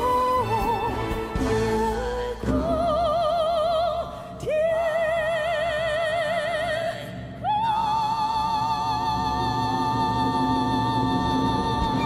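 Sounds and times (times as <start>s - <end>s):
soft orchestral accompaniment: 0.0s - 5.4s.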